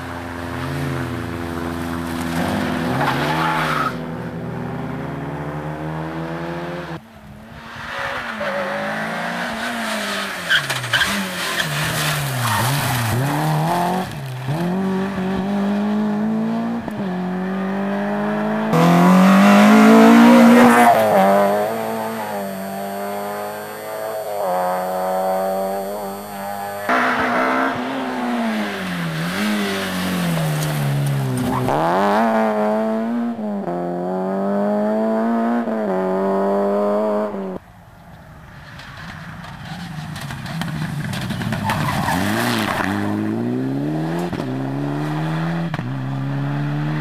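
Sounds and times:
rally car engines revving: 0.0 - 37.6, 39.4 - 47.0.

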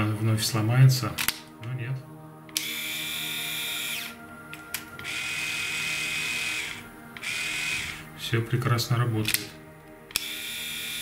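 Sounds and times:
electric shaver whirring: 2.5 - 8.1, 10.1 - 11.0.

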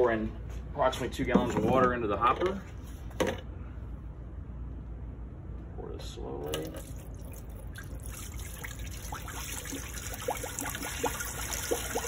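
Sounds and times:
water pouring into metal hopper: 6.5 - 12.0
water bubbling plops: 6.6 - 12.0.

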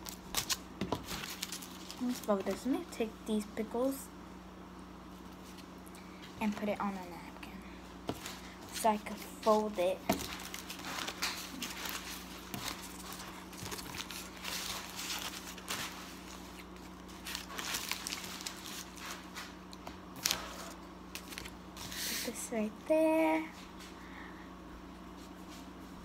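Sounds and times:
paper and foil crinkling: 0.0 - 2.8, 8.1 - 22.4.

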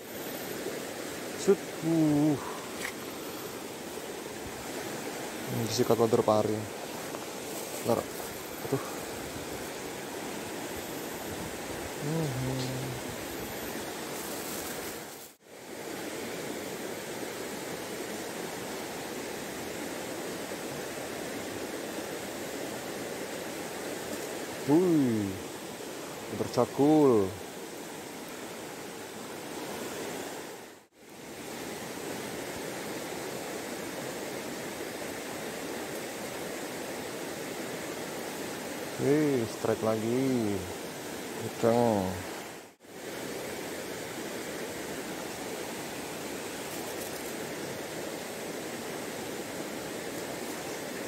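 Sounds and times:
stream flowing over rocks: 0.0 - 12.0
rocky stream running: 0.1 - 12.0, 31.4 - 51.0.

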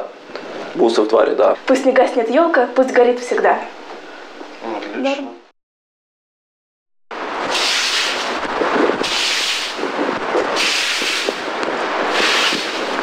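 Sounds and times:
outdoor rumble: 7.1 - 13.0
broom sweeping snow: 7.4 - 9.9, 10.5 - 11.4, 12.1 - 13.0.

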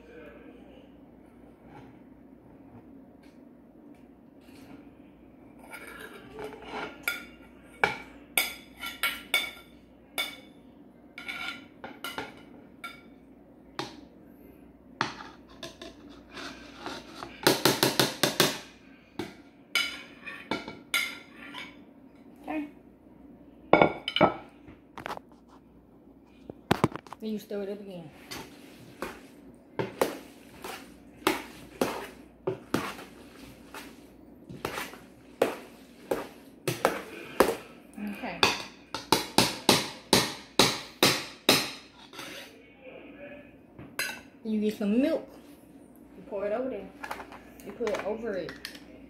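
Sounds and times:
spoon stirring and scraping pot: 11.2 - 13.1, 15.0 - 18.5, 19.2 - 21.9, 28.1 - 37.8, 41.8 - 42.6.

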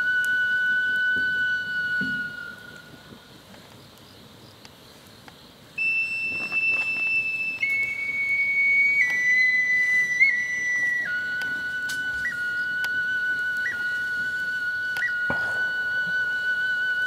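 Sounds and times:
high wind instrument held notes: 0.0 - 3.3, 5.8 - 17.0
faint clicks: 2.4 - 5.4.

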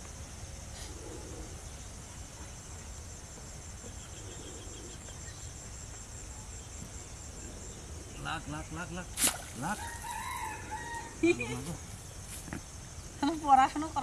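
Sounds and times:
insects chirring: 0.0 - 14.0.

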